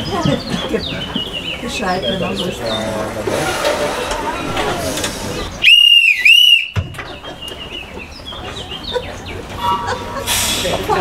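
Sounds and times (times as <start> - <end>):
hand whistle blasts: 5.6 - 6.8.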